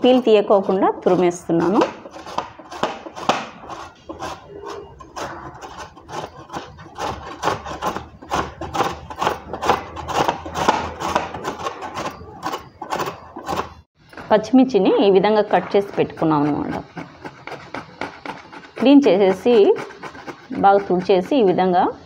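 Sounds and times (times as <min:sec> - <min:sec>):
mango rasping on grater: 0:00.0 - 0:21.8.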